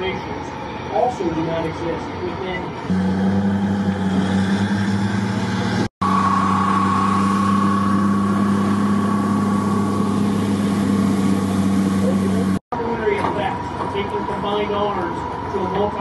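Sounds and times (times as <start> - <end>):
heavy diesel engines droning: 0.0 - 16.0
faint high whine: 6.0 - 12.6.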